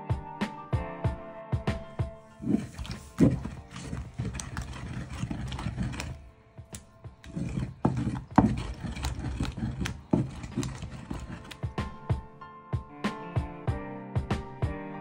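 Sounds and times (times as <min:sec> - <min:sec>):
pestle grinding wet food: 0:02.4 - 0:11.7
wood knocking on clay: 0:02.4 - 0:11.7.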